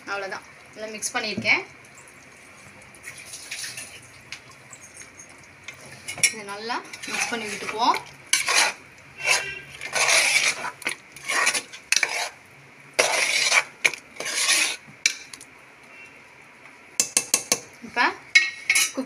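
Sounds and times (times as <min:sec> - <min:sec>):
metal spoon scraping pot: 0:06.0 - 0:12.4, 0:13.0 - 0:15.3
spoon clinking against pot: 0:17.0 - 0:17.7.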